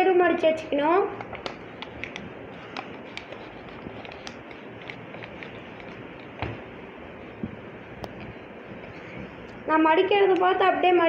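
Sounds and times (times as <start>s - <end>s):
paper folding and creasing: 1.2s - 6.4s.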